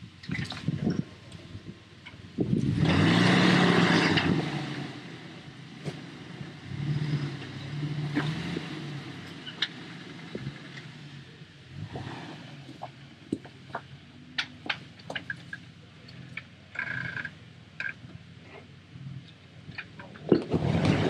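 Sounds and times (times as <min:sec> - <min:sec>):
engine revving under load: 0:02.4 - 0:12.9, 0:20.2 - 0:21.0.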